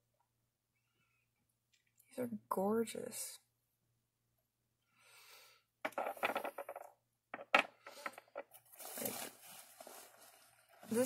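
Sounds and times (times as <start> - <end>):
rustling: 7.4 - 11.0.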